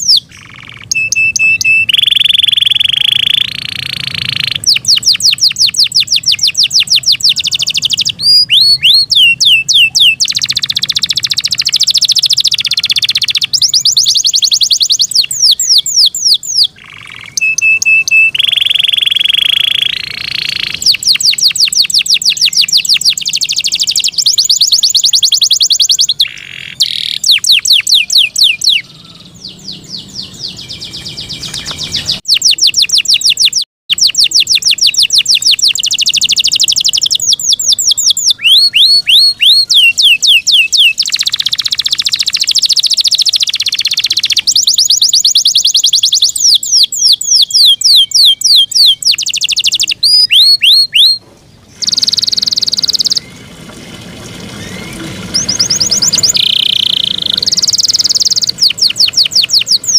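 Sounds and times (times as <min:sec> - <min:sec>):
canary singing trills: 0:00.0 - 0:53.6, 0:54.5 - 0:59.9.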